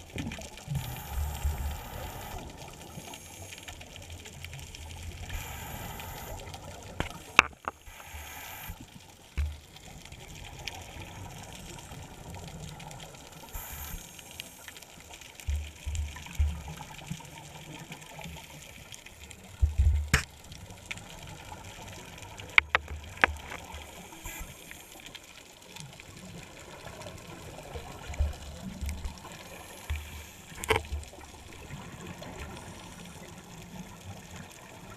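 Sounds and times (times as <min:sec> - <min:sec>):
muffled underwater noise: 0:17.2 - 0:34.9.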